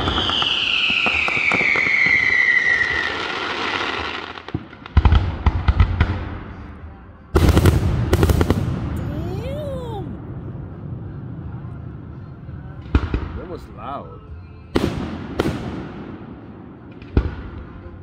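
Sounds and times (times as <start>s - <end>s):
firework cracks and bangs: 0.0s - 6.6s, 7.4s - 10.0s, 14.8s - 17.9s.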